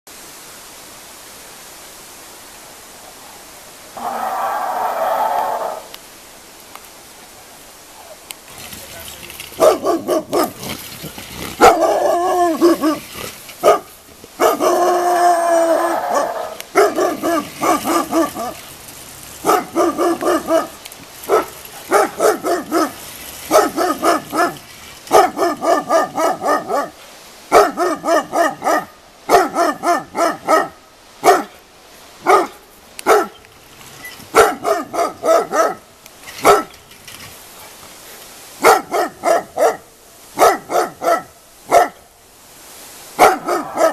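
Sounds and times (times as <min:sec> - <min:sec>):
dog barking rapidly: 0:09.6 - 0:10.7, 0:11.6 - 0:15.0, 0:16.0 - 0:18.6, 0:19.4 - 0:31.5, 0:32.2 - 0:33.4, 0:34.3 - 0:35.8, 0:36.4 - 0:36.7, 0:38.6 - 0:42.0, 0:43.2 - 0:43.9
dog drawn-out baying calls: 0:09.6 - 0:10.8, 0:11.4 - 0:18.6, 0:19.4 - 0:31.5, 0:43.2 - 0:43.9.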